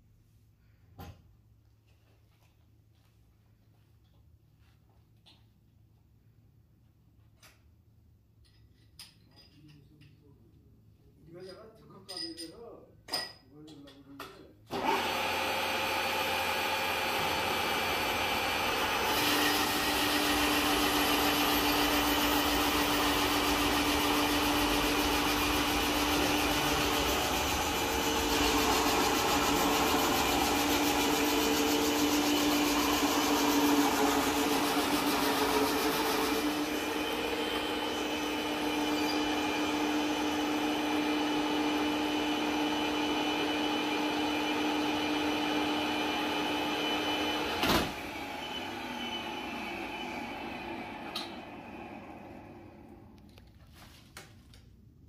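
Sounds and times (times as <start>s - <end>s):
motor hum: 14.9s - 41.3s.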